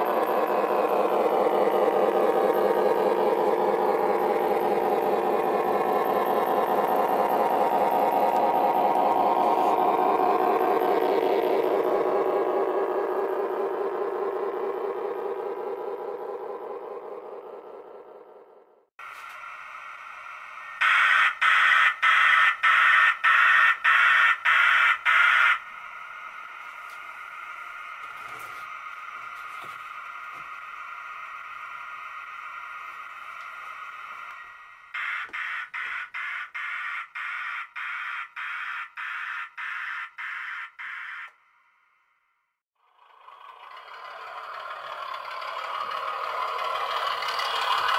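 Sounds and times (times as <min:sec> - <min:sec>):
model steam locomotive whine: 0:00.0 - 0:18.2, 0:19.0 - 0:41.3, 0:42.9 - 0:47.9
loud electronic pulses: 0:00.0 - 0:18.8, 0:19.6 - 0:41.4
wheels on rails: 0:00.0 - 0:41.6, 0:42.8 - 0:47.9
model train motor whirring: 0:43.0 - 0:47.9.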